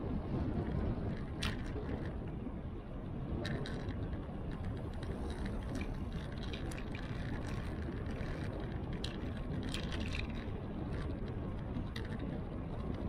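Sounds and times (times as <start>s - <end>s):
wind noise on microphone: 0.0s - 13.0s
light ticks and rattles: 3.4s - 13.0s.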